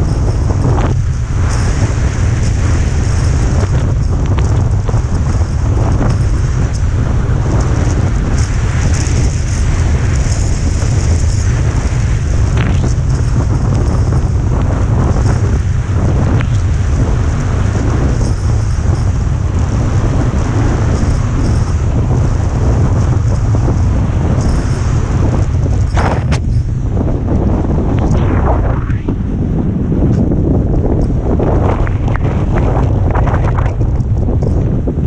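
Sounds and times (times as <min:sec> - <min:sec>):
skis scraping over snow: 0:00.0 - 0:29.3
wind buffeting microphone: 0:00.0 - 0:35.0.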